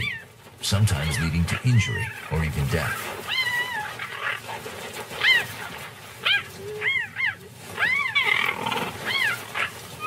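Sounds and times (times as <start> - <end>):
cheetahs yowling: 0.0 - 0.4, 1.0 - 10.0
cheetah snarl: 7.8 - 9.8.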